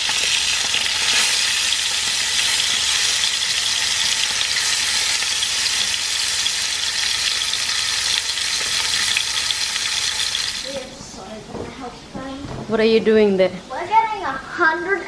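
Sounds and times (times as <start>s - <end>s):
fish sizzling in a frying pan: 0.0s - 10.8s.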